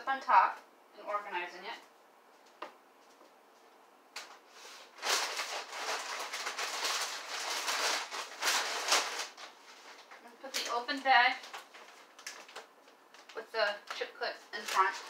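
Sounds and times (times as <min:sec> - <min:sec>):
bags crinkling and rustling: 0:04.9 - 0:13.9, 0:14.6 - 0:15.0.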